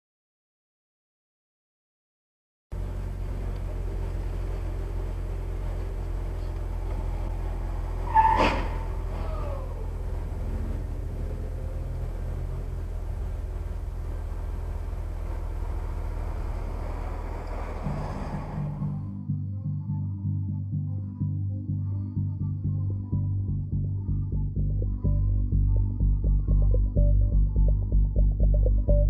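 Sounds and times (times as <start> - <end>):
car engine idling: 2.7 - 19.2.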